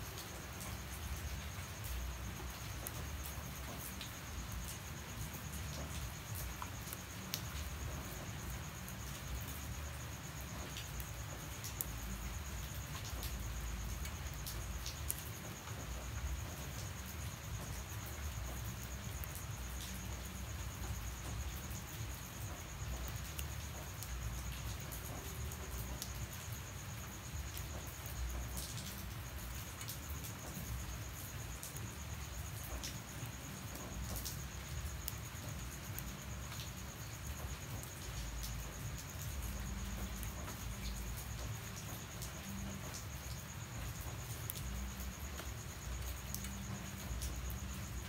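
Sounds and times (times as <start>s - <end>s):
light rain falling: 0.0s - 48.0s.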